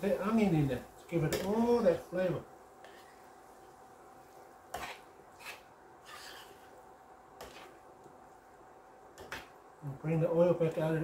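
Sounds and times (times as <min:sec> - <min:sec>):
spoon scraping a metal pan: 0:04.7 - 0:06.8, 0:07.4 - 0:07.8.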